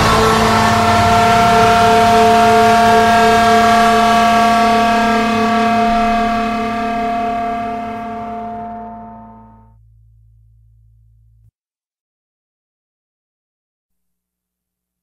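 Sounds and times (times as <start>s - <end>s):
sustained metal guitar chord: 0.0s - 11.4s.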